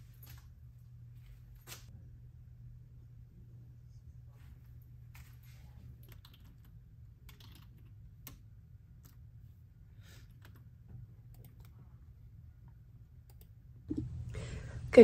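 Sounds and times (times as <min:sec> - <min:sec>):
low room hum: 0:00.0 - 0:15.0
computer keyboard and mouse clicks: 0:11.3 - 0:11.8.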